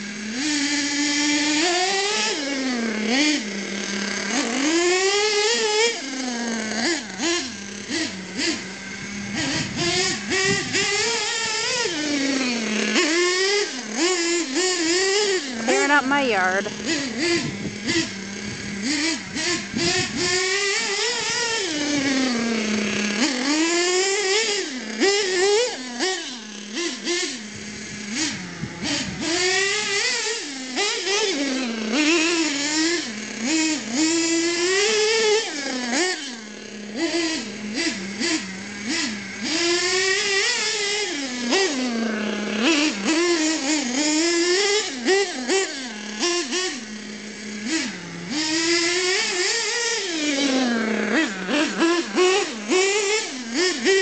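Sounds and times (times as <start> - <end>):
rc car engine revving: 0.0 - 54.0.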